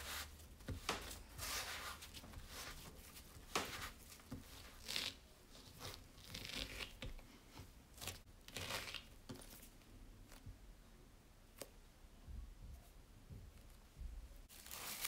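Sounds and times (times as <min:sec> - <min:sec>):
hands kneading dough: 0:00.0 - 0:10.8.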